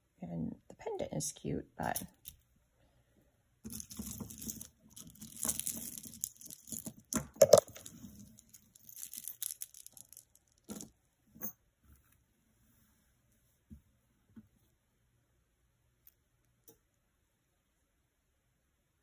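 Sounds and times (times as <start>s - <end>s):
beads and chain links clinking: 3.7s - 11.6s.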